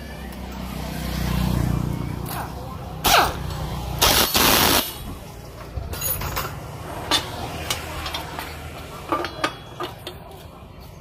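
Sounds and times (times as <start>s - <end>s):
metal parts and tools clicking: 3.3s - 10.5s
loud hiss-like burst: 4.0s - 5.0s.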